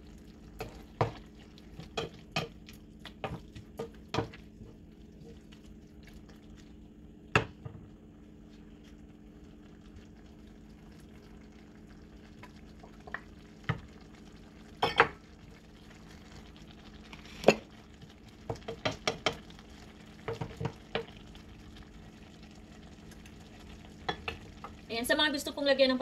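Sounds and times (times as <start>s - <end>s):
faint steady hum: 0.0s - 26.0s
wooden spatula knocking a pan: 0.6s - 1.2s, 3.2s - 4.4s, 18.5s - 19.4s, 20.2s - 21.1s.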